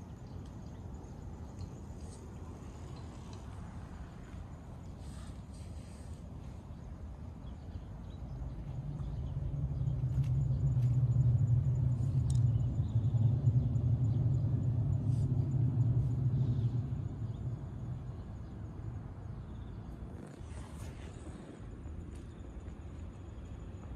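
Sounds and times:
vehicle passing low rumble: 8.2 - 23.8.

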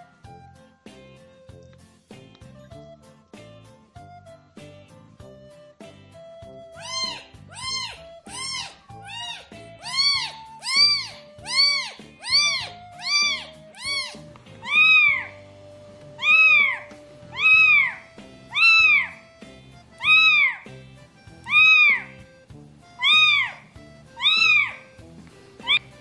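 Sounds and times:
soft background music: 0.0 - 26.0
kitten mewing: 6.8 - 15.4, 16.2 - 19.3, 20.0 - 20.8, 21.4 - 22.2, 23.0 - 24.9, 25.6 - 26.0.

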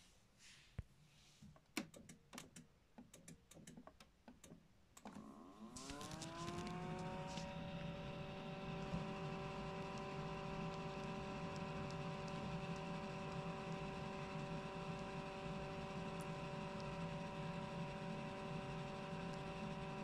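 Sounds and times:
clicking: 1.6 - 5.2
washing machine motor whine: 5.2 - 20.0.

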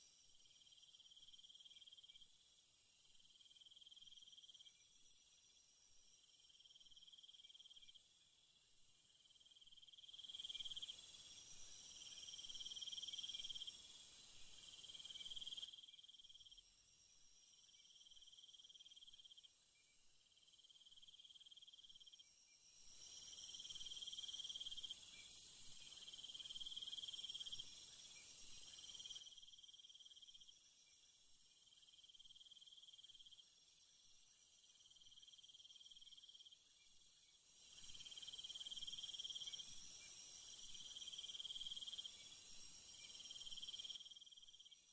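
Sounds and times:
insects chirping in trills: 0.0 - 44.9.

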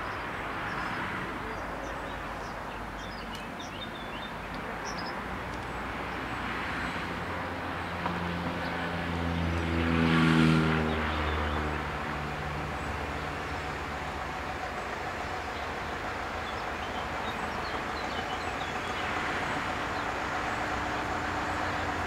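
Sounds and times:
birds chirping: 0.0 - 9.8, 10.7 - 22.0
vehicle engine passing: 5.6 - 22.0.

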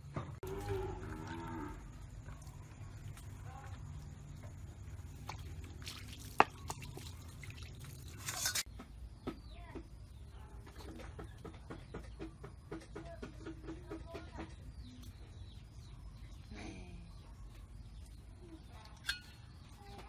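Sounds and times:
water sloshing and dripping: 0.4 - 8.7
water poured out splashing: 5.2 - 8.7.

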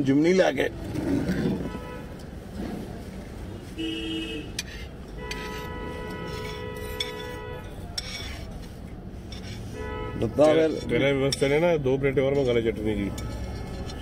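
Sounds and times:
low traffic rumble: 0.0 - 14.0
vehicle horns honking: 1.5 - 2.2, 3.4 - 7.9, 9.5 - 10.8, 13.1 - 14.0.

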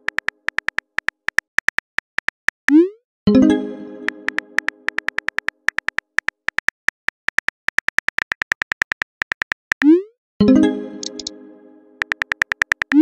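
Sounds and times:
keyboard tap clicks: 0.0 - 2.5, 4.3 - 9.9, 11.0 - 11.3, 12.0 - 13.0
plucked chime: 3.3 - 4.8, 10.4 - 12.0.

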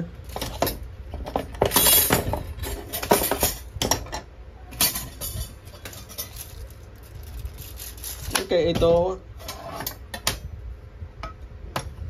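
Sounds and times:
metal tools clanking: 0.2 - 6.7.

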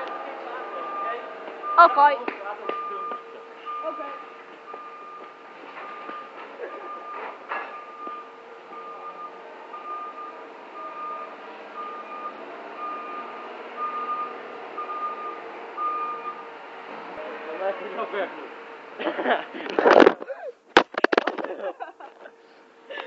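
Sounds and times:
electronic beeps: 0.1 - 6.3.

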